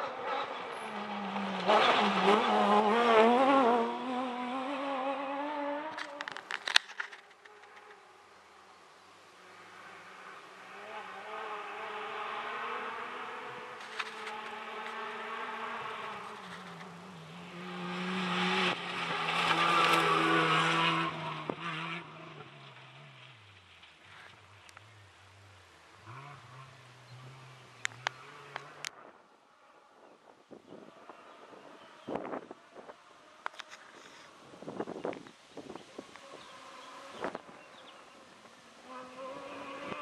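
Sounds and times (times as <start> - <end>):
rally car engine revving: 0.0 - 6.5, 9.5 - 25.1, 25.9 - 29.0.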